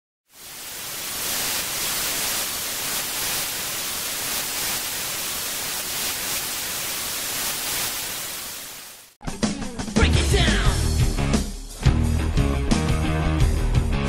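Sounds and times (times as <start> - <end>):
tv static hiss: 0.3 - 9.2.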